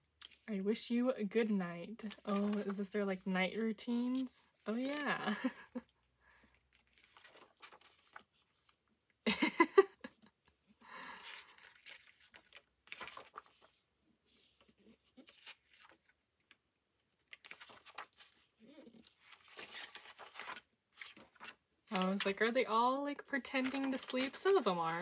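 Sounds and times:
paper pages rustling: 2.0s - 3.3s, 4.0s - 5.8s, 6.4s - 8.8s, 11.2s - 16.6s, 17.2s - 22.4s, 23.2s - 25.0s.

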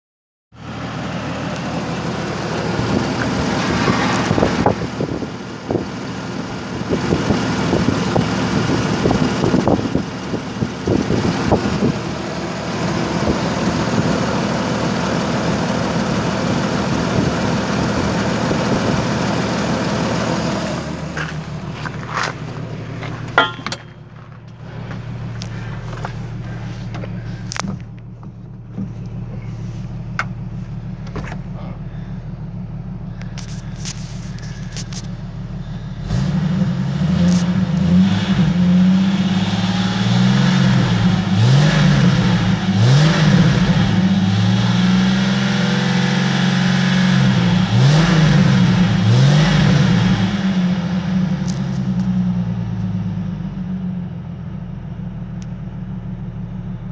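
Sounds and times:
car engine idling with ticking: 0.6s - 38.0s, 45.6s - 56.9s
knocks and clicks: 23.1s - 24.6s.

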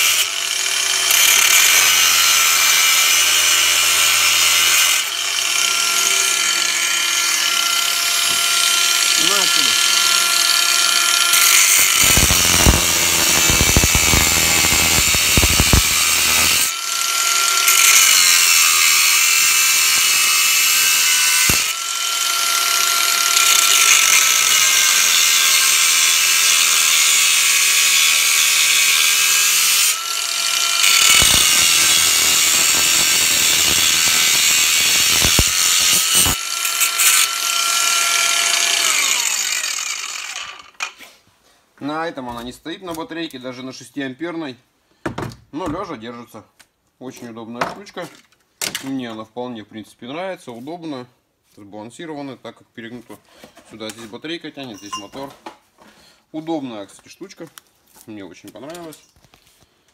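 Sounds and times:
angle grinder cutting metal: 0.0s - 41.0s.

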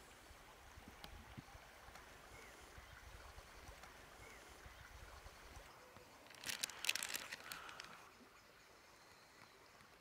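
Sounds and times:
flowing river water: 0.0s - 10.0s
plastic packet crinkling: 6.2s - 8.0s.

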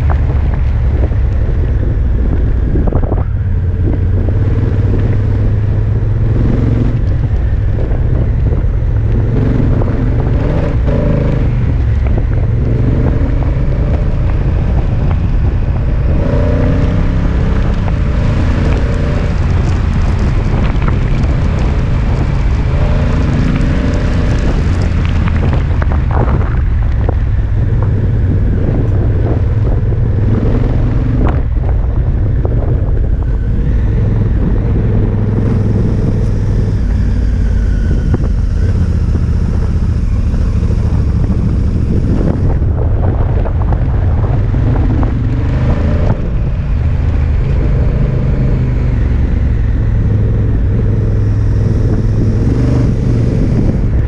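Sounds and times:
motorcycle engine revving: 0.0s - 54.0s
wind noise: 0.0s - 54.0s
gravel knocking: 7.0s - 49.8s.

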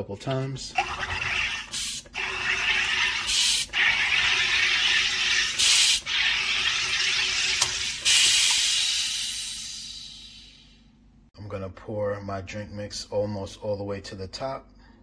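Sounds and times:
gas hissing into water: 0.8s - 10.6s.

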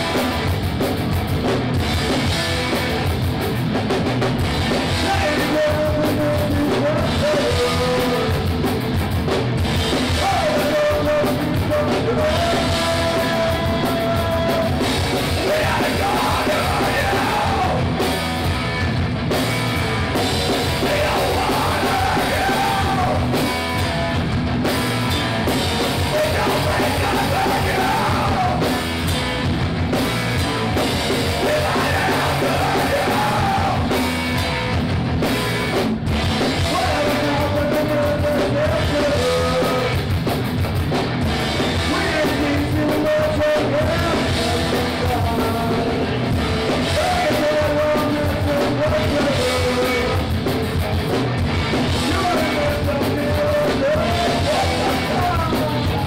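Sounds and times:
drum kit: 0.0s - 56.0s
electric guitars: 0.0s - 56.0s
person yelling and singing: 4.7s - 8.6s, 9.9s - 18.0s, 20.6s - 23.5s, 25.8s - 28.8s, 31.2s - 34.0s, 36.6s - 40.0s, 41.7s - 46.2s, 46.8s - 50.8s, 51.8s - 56.0s.

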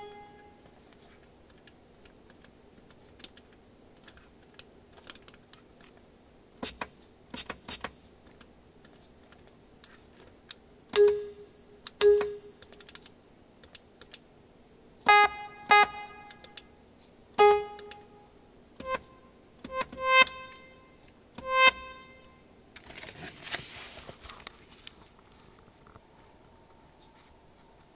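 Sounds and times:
clicks: 17.5s - 18.1s.

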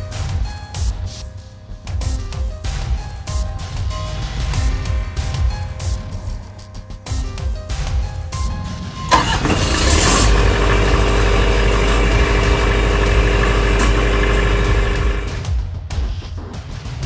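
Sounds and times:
generator engine cranking and running: 9.1s - 15.5s.

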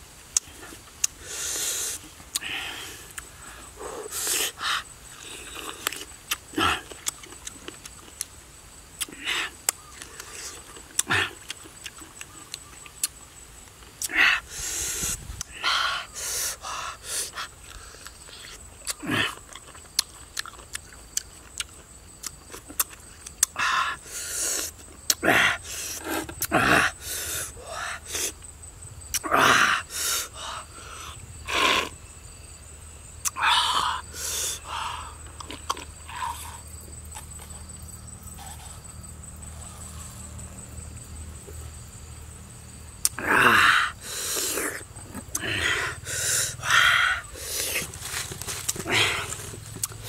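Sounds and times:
man gasping and hissing: 43.2s - 48.0s.

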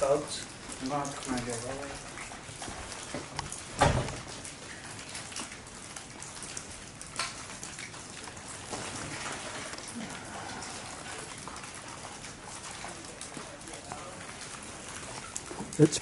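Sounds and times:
sharp drip ticks: 0.0s - 8.8s, 9.7s - 16.0s
heavy rain pouring: 0.0s - 16.0s.

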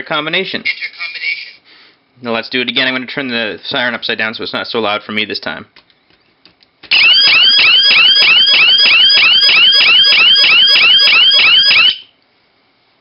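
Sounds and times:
electronic alarm siren warbling: 6.9s - 12.1s.

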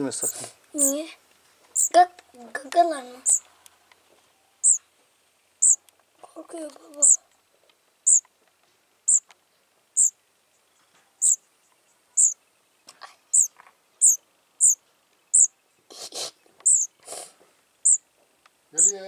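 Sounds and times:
baby bird chirping: 0.0s - 1.0s, 1.7s - 2.0s, 2.6s - 3.5s, 4.6s - 4.9s, 5.6s - 5.9s, 6.7s - 7.3s, 8.0s - 8.3s, 9.0s - 9.3s, 9.9s - 10.2s, 11.2s - 11.4s, 12.0s - 12.4s, 13.0s - 17.2s, 17.8s - 18.1s, 18.8s - 19.0s.

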